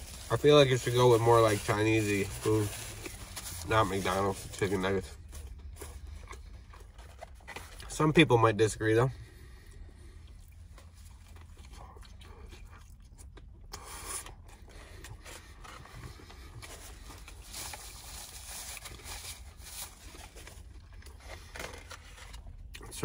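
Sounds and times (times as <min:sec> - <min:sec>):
low steady hum: 0:00.0 - 0:23.0
chewing food: 0:04.7 - 0:08.0, 0:09.4 - 0:23.0.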